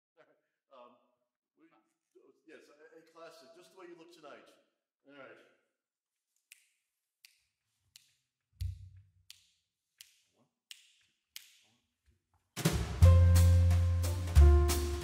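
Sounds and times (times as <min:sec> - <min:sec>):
drum kit with cymbals: 0:12.6 - 0:15.0
grand piano: 0:12.7 - 0:15.0
electric bass: 0:12.8 - 0:15.0.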